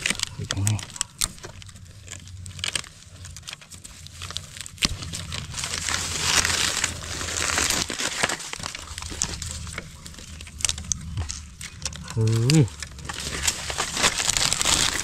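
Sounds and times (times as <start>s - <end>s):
dry leaves and bamboo rustling: 0.0s - 15.0s.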